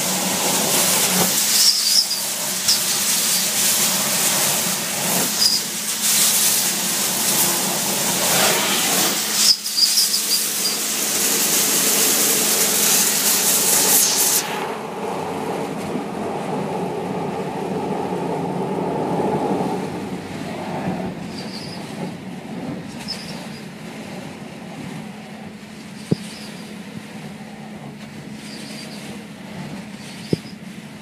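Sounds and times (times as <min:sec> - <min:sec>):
vacuum hose sucking air: 0:00.6 - 0:14.8.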